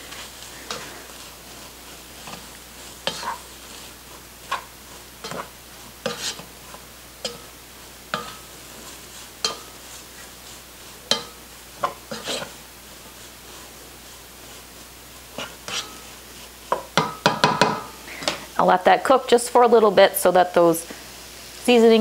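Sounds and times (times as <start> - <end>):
spatula scraping a pot: 0.0 - 7.5, 8.1 - 17.0
metal pan ringing: 7.2 - 7.5.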